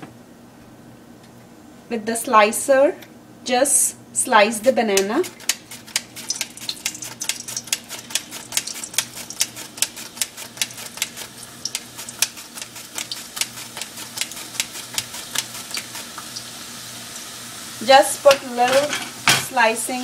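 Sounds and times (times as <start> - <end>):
frying sizzle in hot oil: 4.4 - 20.0.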